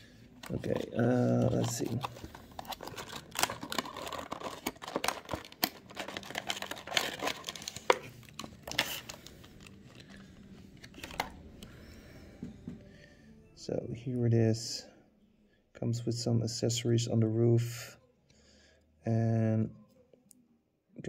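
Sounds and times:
plastic packaging crackling: 0:00.4 - 0:11.4.

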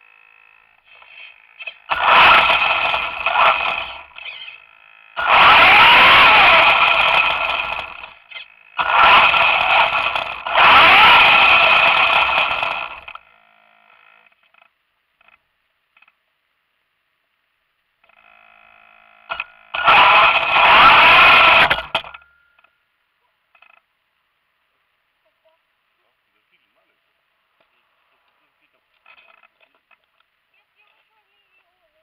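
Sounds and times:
toy car motor whining: 0:00.0 - 0:15.4, 0:18.1 - 0:22.2
tyre noise on asphalt: 0:00.9 - 0:04.5, 0:05.2 - 0:13.2, 0:19.3 - 0:22.2.

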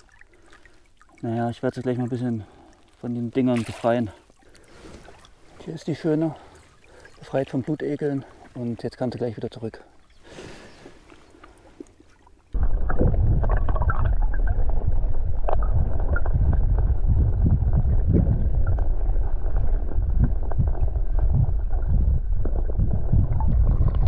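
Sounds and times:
underwater river rumbling and gurgling: 0:10.0 - 0:24.0.

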